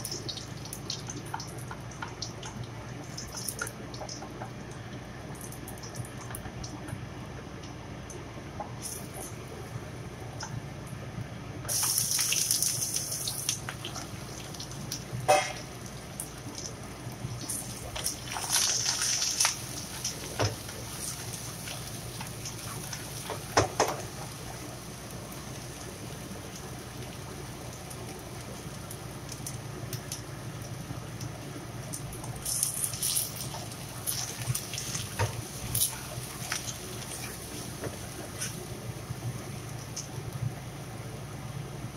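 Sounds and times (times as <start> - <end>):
steady low hum: 0.0 - 41.9
vegetables sizzling in oil: 11.7 - 30.9, 31.8 - 40.4.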